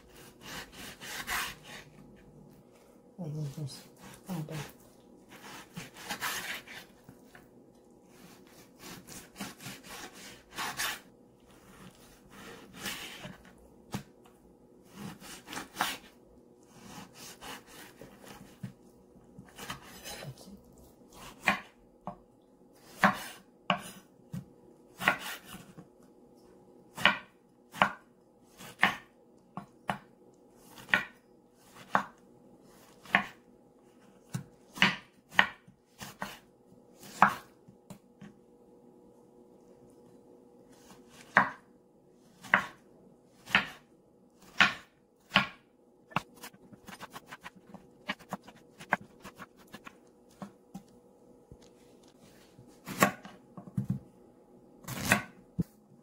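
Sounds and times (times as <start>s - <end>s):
knife slicing meat: 4.0s - 7.0s, 8.1s - 11.1s.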